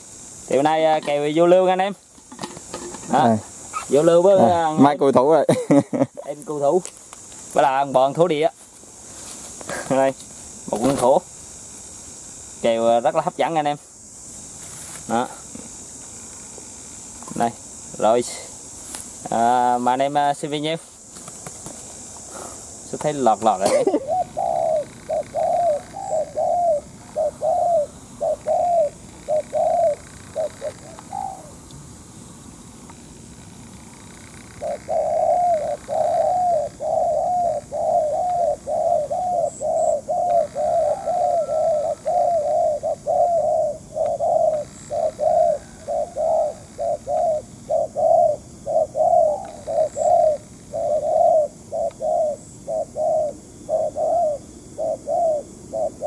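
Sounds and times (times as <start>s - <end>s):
doves cooing: 15.0s - 32.5s, 33.5s - 56.0s.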